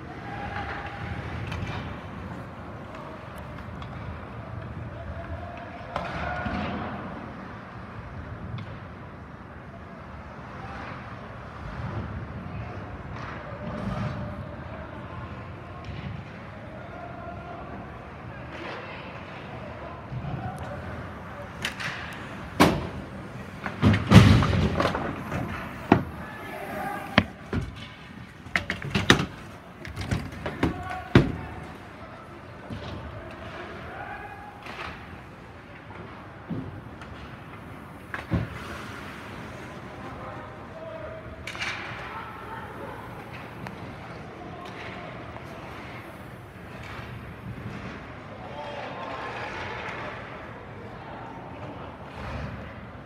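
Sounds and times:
hockey sticks clacking: 0:20.1 - 0:48.0
skates scraping on ice: 0:20.2 - 0:44.5
arena hum: 0:20.3 - 0:32.6
puck knocking against boards: 0:21.6 - 0:31.8.

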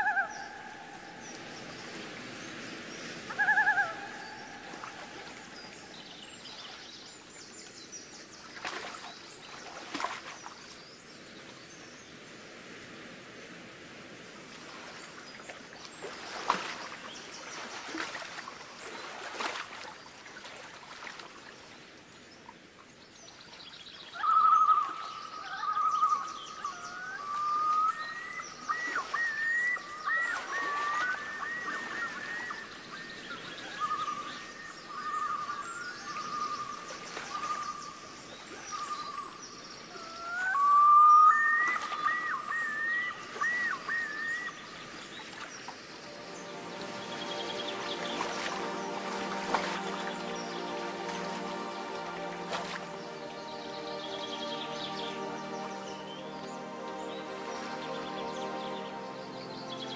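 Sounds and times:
rustling watery background: 0:00.0 - 0:59.9
bird whistled call: 0:24.2 - 0:38.0, 0:40.0 - 0:44.7.

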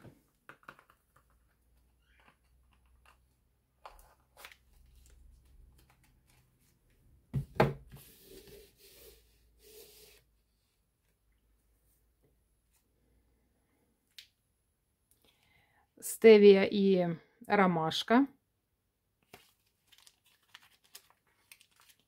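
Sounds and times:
knock on wooden desk: 0:07.3 - 0:07.8
paper wrappers rustling: 0:19.3 - 0:22.0.

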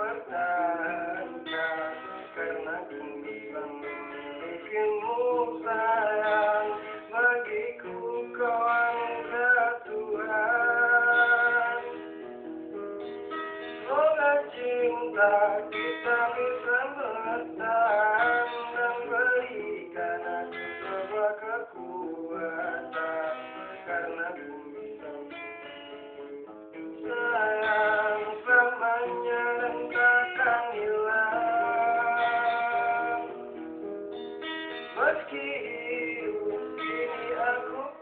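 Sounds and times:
person singing: 0:00.0 - 0:12.2, 0:13.6 - 0:25.8, 0:26.8 - 0:33.6, 0:34.8 - 0:38.0
plucked string accompaniment: 0:00.0 - 0:38.0.

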